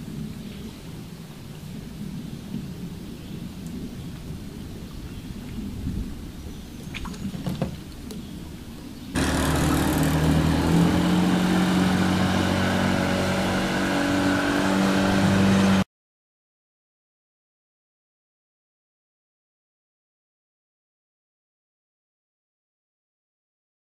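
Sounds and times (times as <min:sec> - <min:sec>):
outboard motor running: 0:09.2 - 0:15.8.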